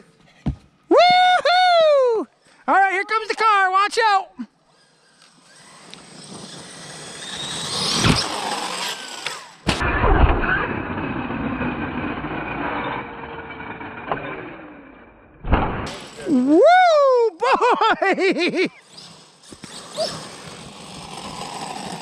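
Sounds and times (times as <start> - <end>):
electric motor whine: 4.7 - 12.4, 18.7 - 22.0
sudden loud thump: 15.4 - 16.0.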